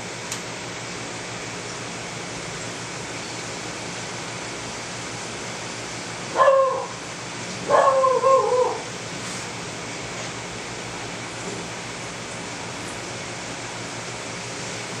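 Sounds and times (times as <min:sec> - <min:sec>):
whining calls: 0:06.4 - 0:07.0, 0:07.6 - 0:08.9.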